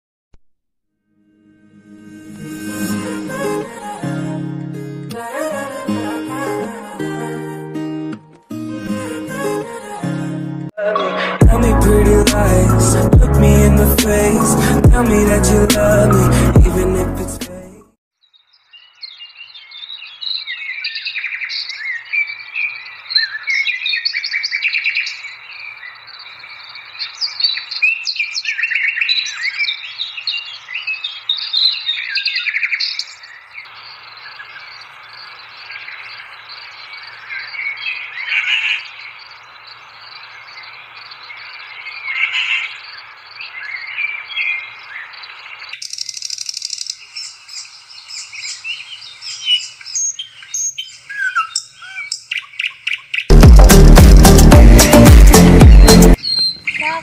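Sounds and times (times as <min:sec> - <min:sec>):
birds chirping and trilling: 0:18.2 - 0:53.4, 0:55.6 - 0:57.0
faint outdoor hiss: 0:32.8 - 0:52.4.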